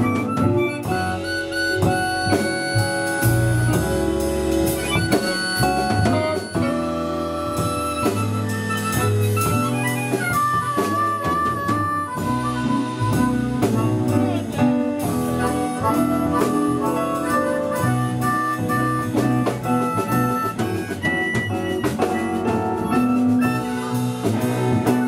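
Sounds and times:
bass line: 0:00.0 - 0:25.0
blues band playing: 0:00.0 - 0:25.0
drum kit: 0:00.0 - 0:25.0
lead instrument bending notes: 0:00.0 - 0:25.0.

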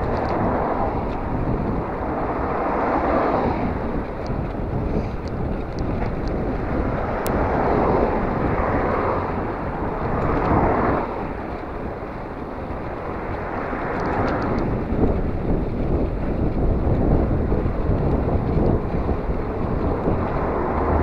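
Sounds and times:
rolling road noise: 0:00.0 - 0:21.0
wind buffeting microphone: 0:00.0 - 0:21.0.

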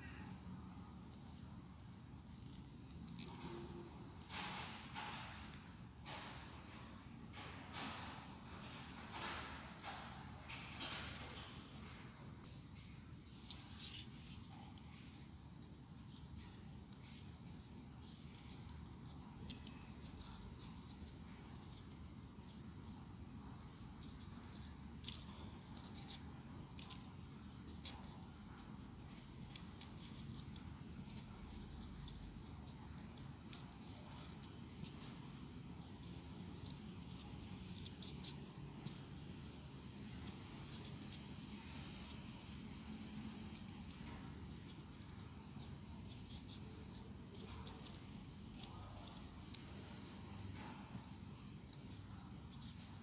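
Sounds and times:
low room hum: 0:00.0 - 0:53.0
paper crinkling: 0:13.1 - 0:53.0.

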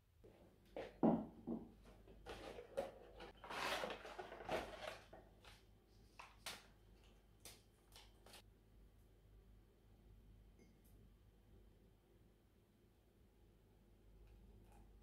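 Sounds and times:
paper sachet rustling and tearing: 0:03.2 - 0:05.6.

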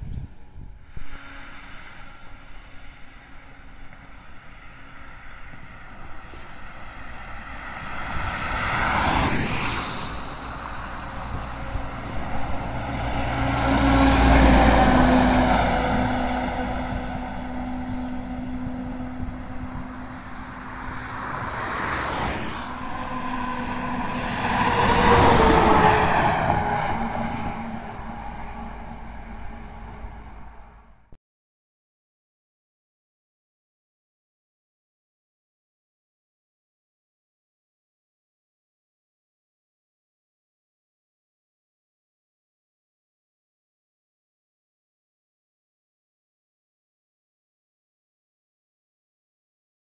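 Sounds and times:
tanker truck passing: 0:00.0 - 0:31.1
road vehicles passing: 0:00.0 - 0:31.2
log truck passing: 0:00.2 - 0:31.1.

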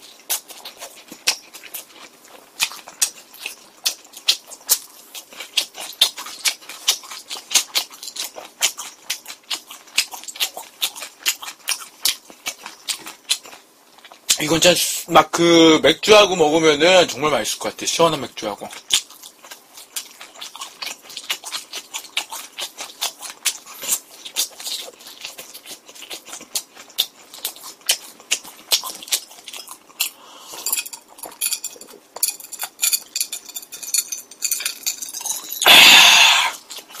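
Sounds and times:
chewing with wet mouth smacks: 0:00.0 - 0:14.4, 0:18.6 - 0:33.2, 0:34.2 - 0:37.0
slurping from a glass: 0:35.2 - 0:36.6.

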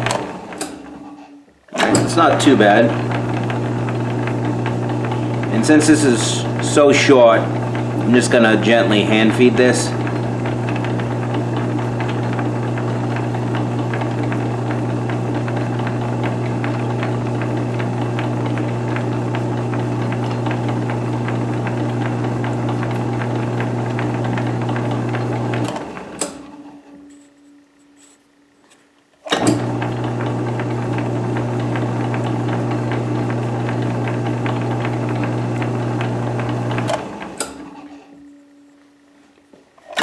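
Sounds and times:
metal lathe running: 0:00.0 - 0:28.2, 0:29.3 - 0:38.2
knurling tool on turning metal: 0:26.6 - 0:29.0.

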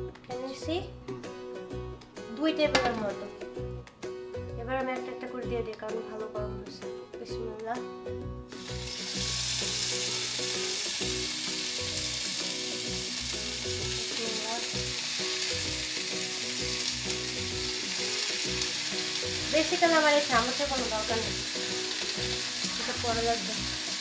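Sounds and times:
skewers sizzling in hot oil: 0:08.5 - 0:24.0.

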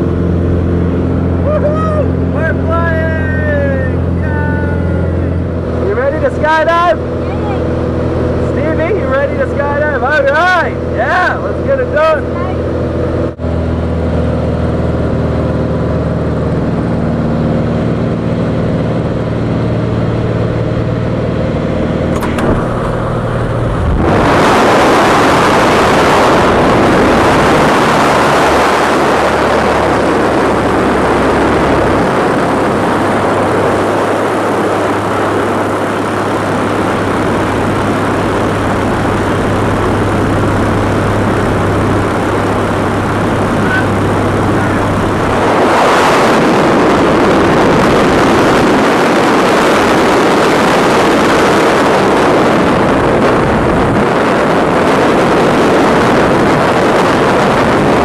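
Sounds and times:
propeller engine droning: 0:00.0 - 0:58.0
wind rushing over microphone: 0:00.0 - 0:58.0
cabin door opening: 0:22.2 - 0:23.8.

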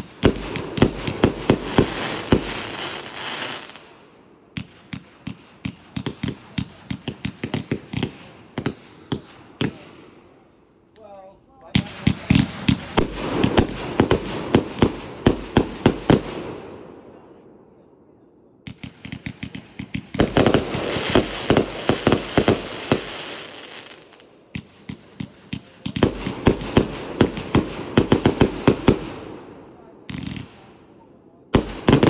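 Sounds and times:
firework cake firing volleys: 0:00.0 - 0:03.9, 0:11.8 - 0:16.5, 0:18.7 - 0:32.0.

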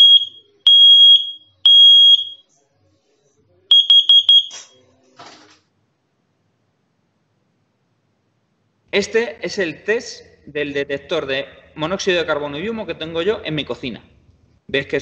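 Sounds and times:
alarm beeping: 0:00.0 - 0:02.5, 0:03.7 - 0:04.7.

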